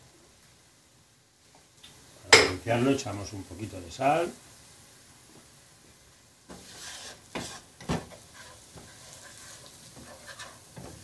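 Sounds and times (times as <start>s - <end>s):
onion sizzling in oil: 0.0s - 11.0s
wooden spatula stirring and scraping: 6.5s - 11.0s.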